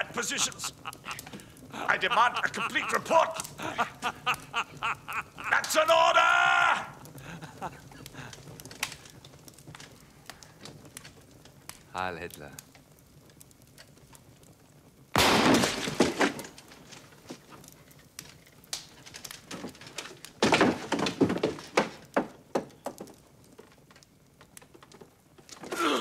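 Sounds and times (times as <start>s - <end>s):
clattering cracking impacts: 0.0s - 11.9s, 12.6s - 26.0s
pistol shot: 15.2s - 16.0s
small knocks: 18.2s - 25.8s.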